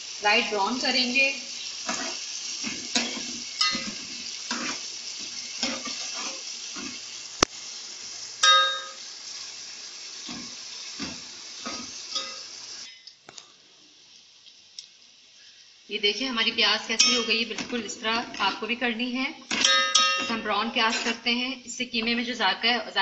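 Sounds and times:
onions sizzling in oil: 0.0s - 23.0s
spatula scraping a pot: 1.8s - 7.0s
ringing metal clang: 8.4s - 9.0s, 17.0s - 17.4s, 19.6s - 20.4s.

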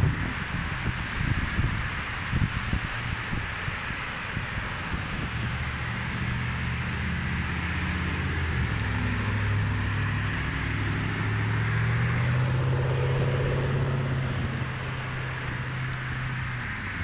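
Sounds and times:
car engines humming: 0.0s - 17.0s
tyres hissing on wet road: 0.0s - 17.0s.

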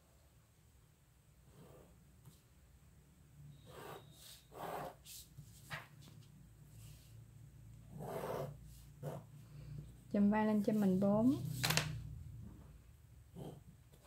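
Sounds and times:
ruler and pen scraping paper: 3.6s - 5.6s, 7.9s - 9.3s.

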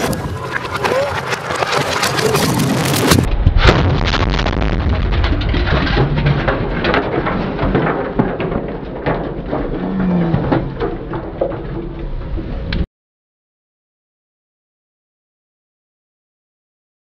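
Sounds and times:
metal churns knocking: 5.3s - 12.4s.

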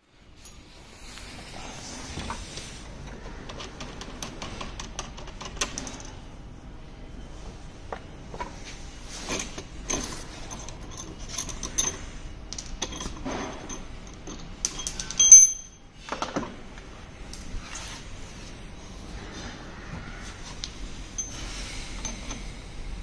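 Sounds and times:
metal parts clinking: 9.2s - 16.4s, 17.3s - 17.8s, 21.2s - 22.6s.

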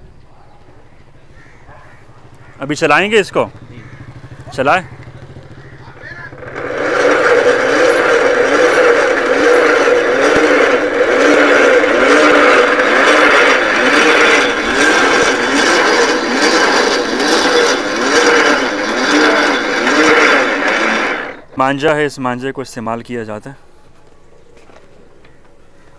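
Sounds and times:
rope machine gears whirring: 6.1s - 21.5s.

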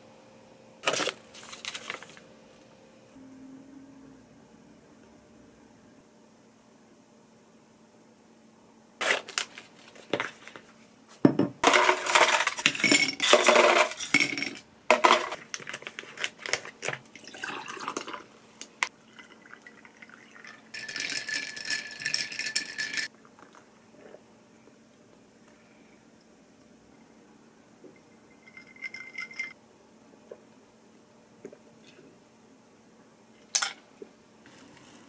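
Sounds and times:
ice cubes clinking into glass: 11.6s - 15.4s, 20.4s - 23.1s, 28.4s - 29.5s.

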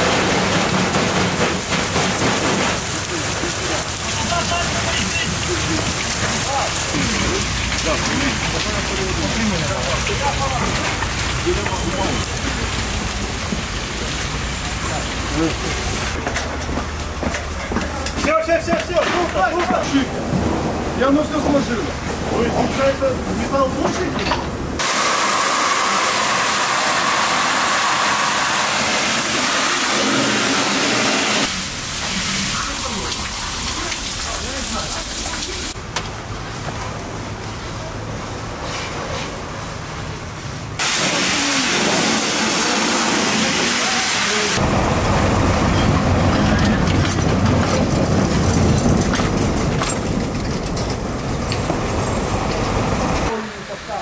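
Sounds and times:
water jet hissing: 0.0s - 16.2s, 24.8s - 35.8s, 40.8s - 46.3s
tram wheels clicking on rails: 0.0s - 21.8s, 44.6s - 53.3s
fire hose water jet hissing: 24.8s - 35.8s, 40.8s - 44.7s
tram rumbling past: 44.6s - 54.0s.

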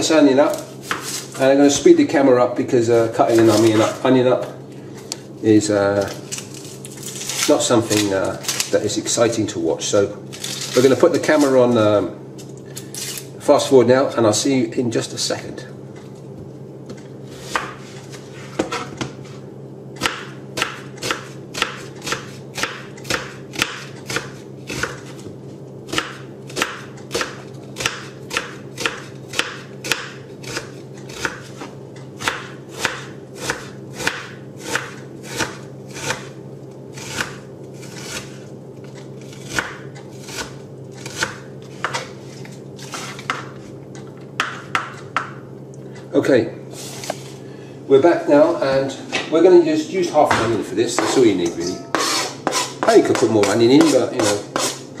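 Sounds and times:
knife chopping on plastic board: 0.5s - 1.2s, 16.9s - 17.8s, 20.0s - 25.3s, 25.9s - 36.3s, 37.0s - 38.4s, 39.3s - 42.1s, 42.8s - 43.6s, 44.4s - 45.4s, 51.9s - 54.8s.

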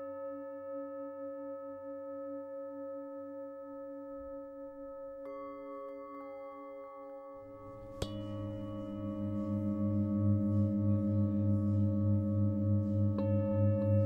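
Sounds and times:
singing bowl rim rubbing tone: 2.1s - 14.0s
singing bowl strike: 4.8s - 14.0s.

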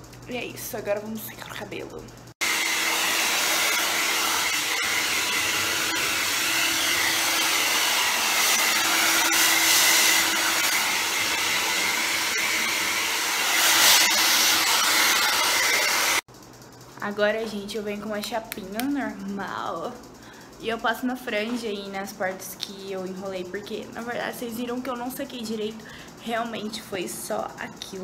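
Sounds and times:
hair dryer blowing: 2.3s - 16.3s.

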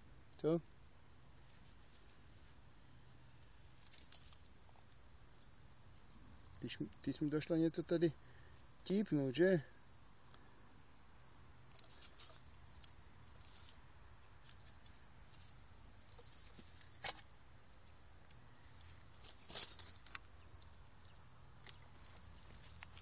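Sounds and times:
faint clicks and rustles: 1.3s - 2.7s, 3.4s - 7.1s, 11.6s - 13.8s, 14.4s - 17.3s, 18.2s - 23.0s.

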